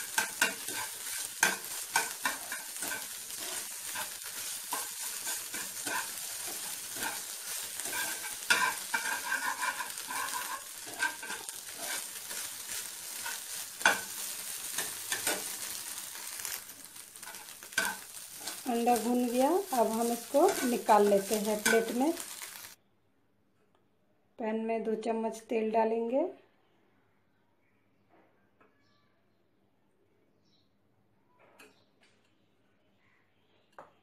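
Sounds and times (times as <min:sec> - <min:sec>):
spatula tapping pan: 0:00.0 - 0:22.6
metal spatula scraping pan: 0:00.0 - 0:22.7
egg sizzling in frying pan: 0:00.0 - 0:22.8.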